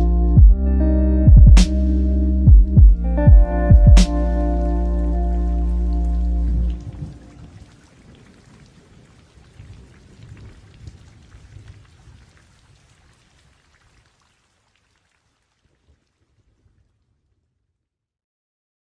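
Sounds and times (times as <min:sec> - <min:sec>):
low rumble: 0:00.0 - 0:07.6
patter of raindrops: 0:04.6 - 0:17.7.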